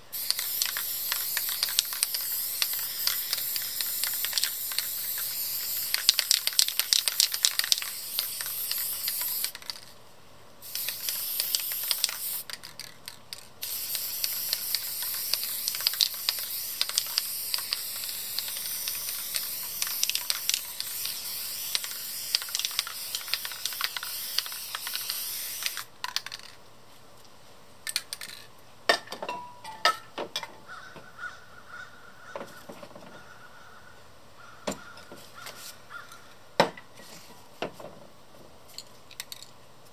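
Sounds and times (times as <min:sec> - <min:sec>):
spray paint can hissing: 0:00.1 - 0:09.9, 0:10.6 - 0:26.5.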